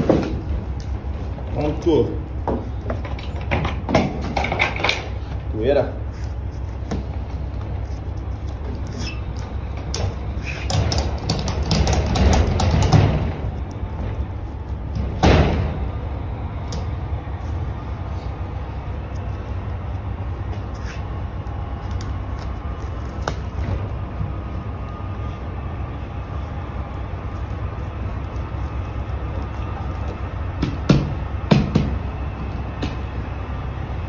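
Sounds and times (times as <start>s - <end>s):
loud thump: 15.1s - 15.9s.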